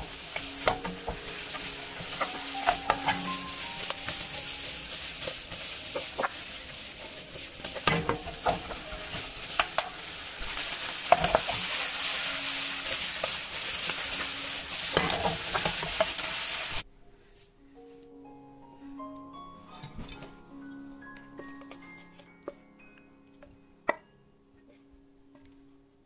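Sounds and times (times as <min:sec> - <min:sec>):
food sizzling in frying pan: 0:00.0 - 0:16.8
wooden spatula scraping pan: 0:00.0 - 0:16.8
soft music: 0:00.0 - 0:26.0.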